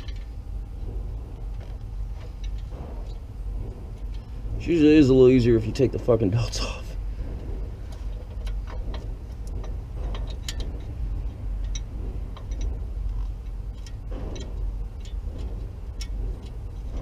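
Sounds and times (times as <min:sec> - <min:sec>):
steady low rumble: 0:00.0 - 0:17.0.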